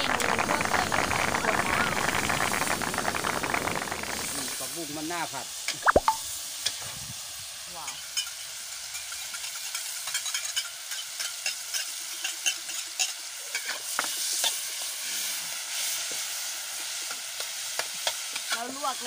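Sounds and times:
stirring clicks and scrapes: 0.0s - 4.6s
vegetables sizzling in a pan: 0.0s - 19.0s.

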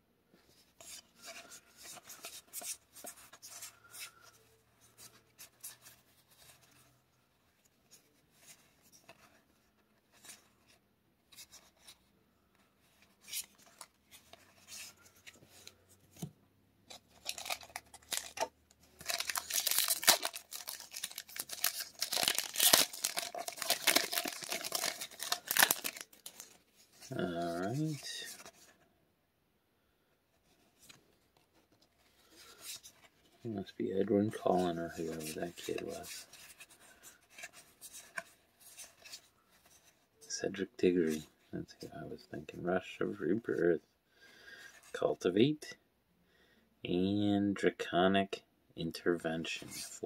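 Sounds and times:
trading cards rustling: 16.9s - 28.7s, 34.0s - 39.9s
foil wrapper tearing and crinkling: 17.2s - 26.6s.

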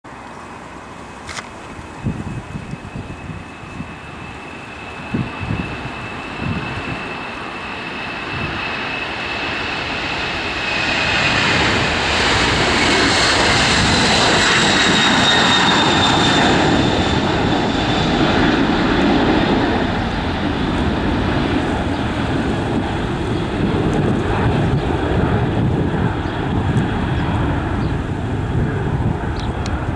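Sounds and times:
jet engine roar: 0.1s - 29.9s.

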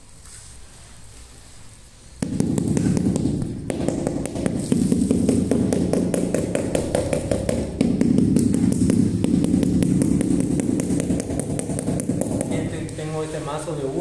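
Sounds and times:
rubber mallet tapping tile: 2.2s - 13.0s.

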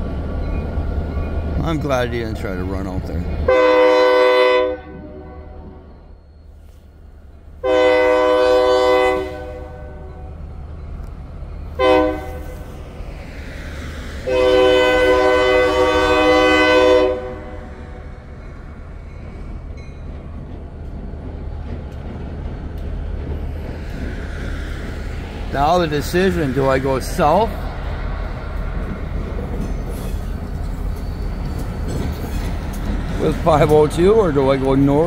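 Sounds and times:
locomotive air horn blasts: 3.5s - 5.8s, 7.6s - 10.3s, 11.8s - 12.6s, 14.3s - 17.8s.

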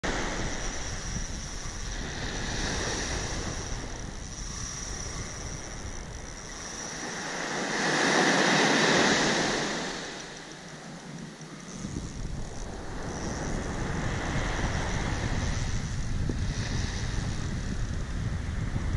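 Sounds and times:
wind rumbling on microphone: 0.0s - 18.9s
surf breaking on beach: 7.0s - 10.4s.

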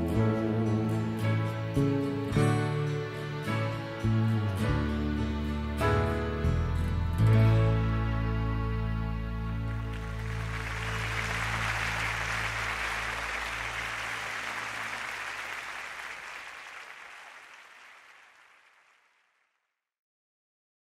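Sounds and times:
audience applauding: 9.7s - 19.4s.

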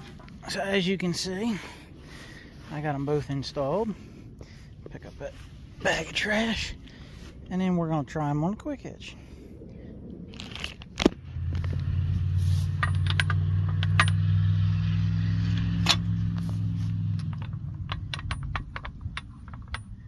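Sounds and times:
low engine hum: 9.2s - 20.0s
metal clinks and clicks: 12.7s - 14.3s, 17.1s - 20.0s.

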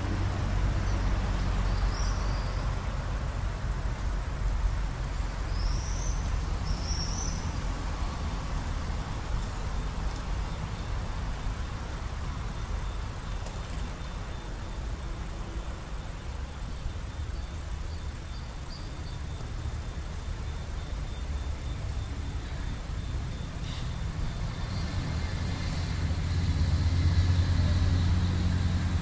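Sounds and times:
bird chirps: 5.5s - 7.5s, 17.3s - 25.0s.

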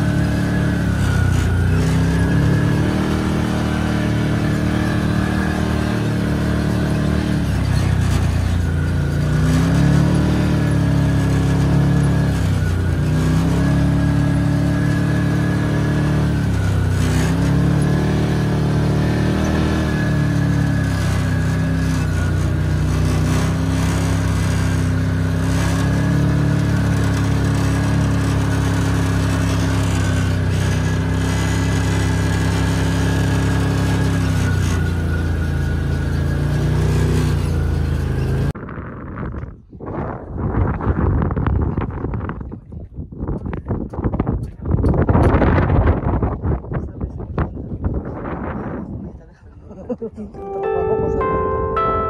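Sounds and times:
buggy engine running: 0.0s - 52.0s.

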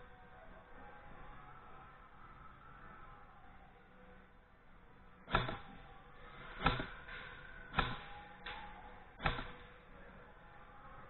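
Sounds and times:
airsoft gun shots: 5.3s - 5.9s, 6.5s - 9.7s.

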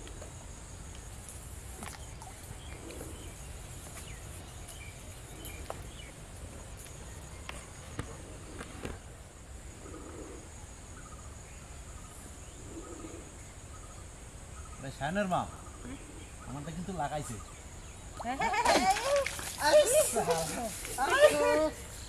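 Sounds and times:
insect drone: 0.0s - 22.0s
faint bird chirps: 9.8s - 18.4s.

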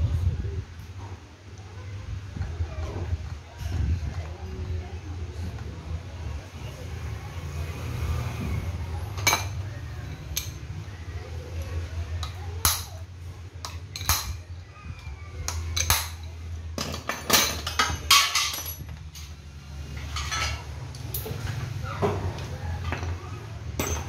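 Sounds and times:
metal tools clinking: 15.5s - 21.5s, 22.8s - 24.0s.

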